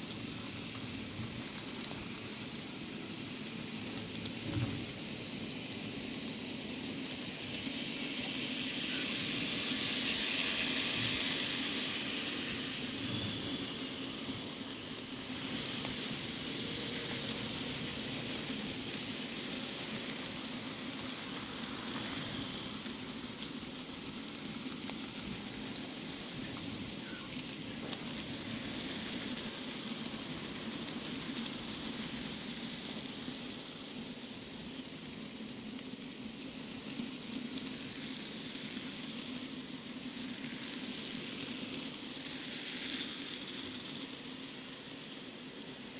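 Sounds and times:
model train wheels rattling on rails: 0.0s - 45.9s.

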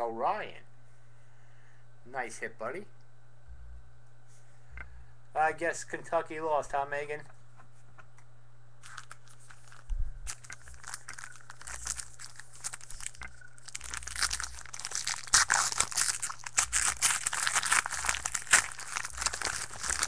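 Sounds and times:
wrapper tearing and crinkling: 8.8s - 20.0s.

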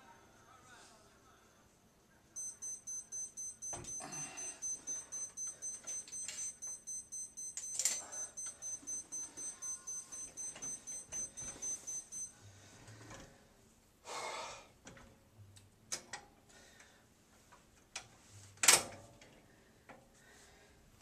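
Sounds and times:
electronic timer beeping: 2.4s - 12.4s.

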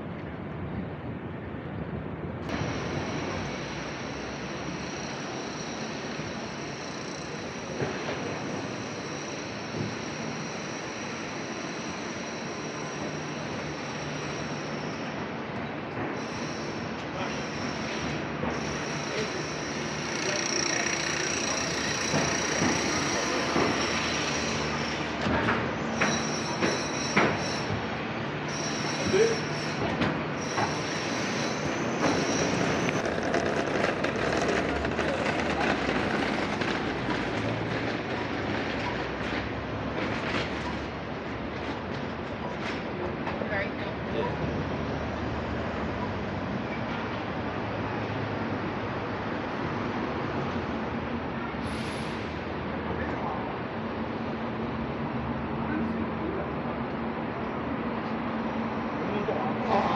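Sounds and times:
city street traffic: 0.0s - 59.9s
faint high squeal: 2.6s - 25.2s, 25.8s - 27.8s, 28.4s - 33.1s.

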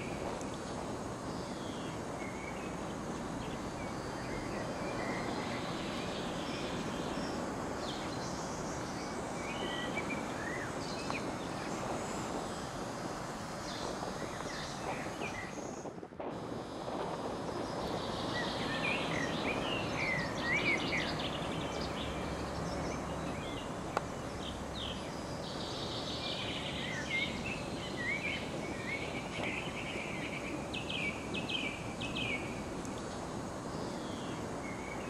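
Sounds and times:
small birds chirping: 0.0s - 16.0s, 17.3s - 35.0s
wind rushing: 0.0s - 23.8s.

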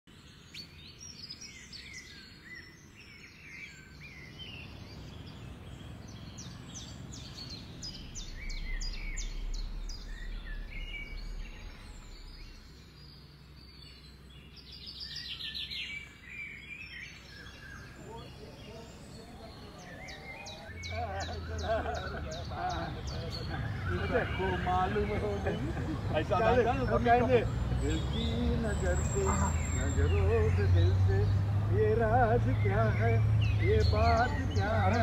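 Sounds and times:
outdoor background noise: 0.1s - 35.0s
small birds chirping: 0.1s - 35.0s
low rumble: 6.4s - 13.8s.

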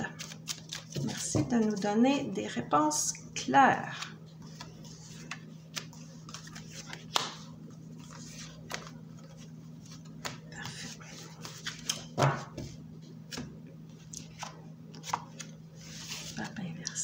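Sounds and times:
cards tapping and sliding: 4.5s - 8.9s.

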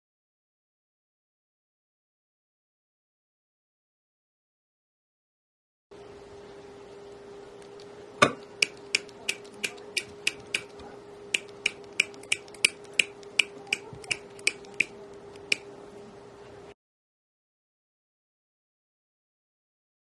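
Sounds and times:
faint steady hum: 5.9s - 16.8s
wire cutters snipping wire: 8.2s - 10.8s, 11.4s - 15.6s.

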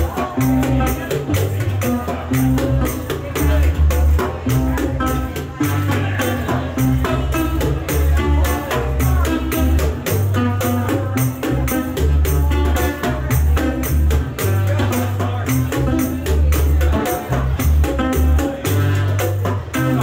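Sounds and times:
acoustic guitar: 0.0s - 20.0s
electric bass line: 0.0s - 20.0s
hand percussion beat: 0.0s - 20.0s.

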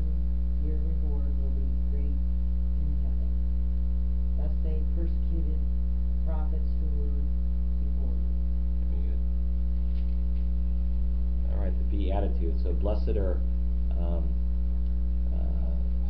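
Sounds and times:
electrical mains hum: 0.0s - 16.0s
faint murmurs: 11.4s - 14.4s.

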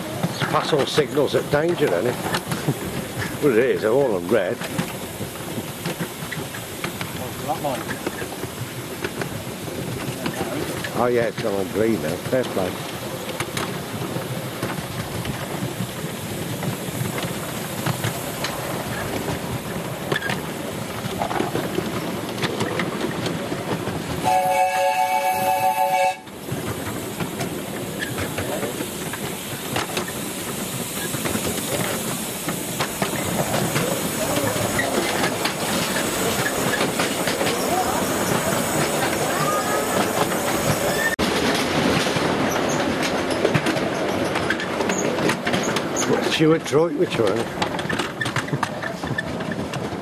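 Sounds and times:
carriages clicking over rail joints: 0.0s - 50.0s
steam locomotive whistle: 24.2s - 26.3s, 38.8s - 41.2s.

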